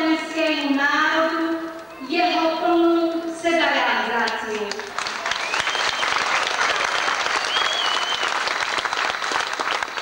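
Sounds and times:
crowd applauding: 4.6 - 10.0.

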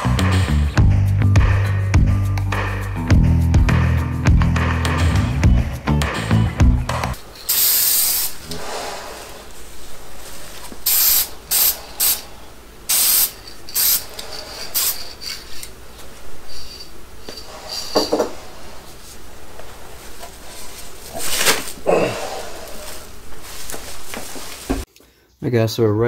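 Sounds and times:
aerosol spray bursts: 7.5 - 9.0, 10.8 - 12.3, 12.9 - 15.4
handling and rustling: 9.1 - 10.9, 13.4 - 21.8, 22.6 - 24.9.

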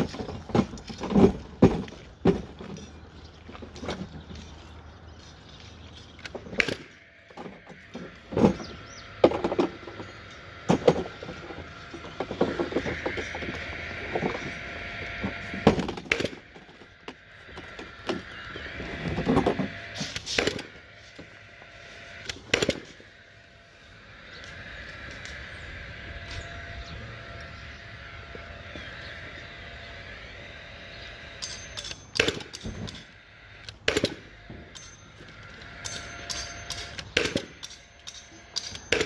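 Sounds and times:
nail gun firing: 31.8 - 33.0, 33.9 - 34.3, 36.7 - 37.8.

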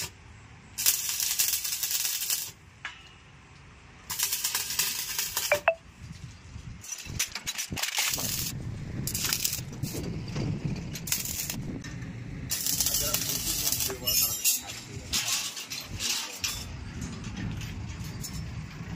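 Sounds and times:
arc welding crackling hiss: 0.0 - 2.6, 4.0 - 5.5, 7.9 - 10.0, 11.0 - 11.8, 12.5 - 14.3.

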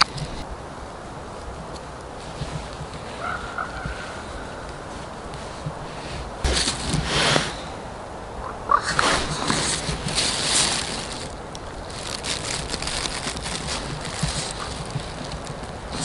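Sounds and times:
plastic bag rustling and crinkling: 4.9 - 7.6, 8.9 - 16.0
small crackles: 8.8 - 16.0.

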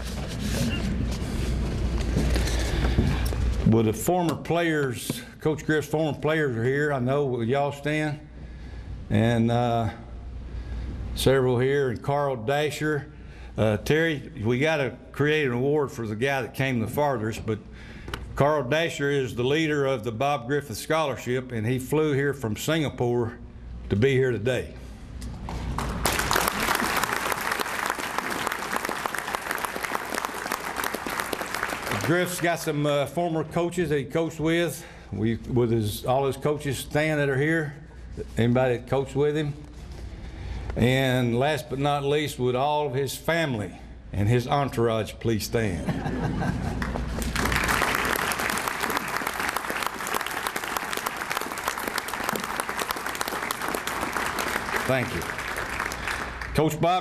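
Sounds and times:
audience applauding: 25.7 - 32.6, 46.8 - 56.7.

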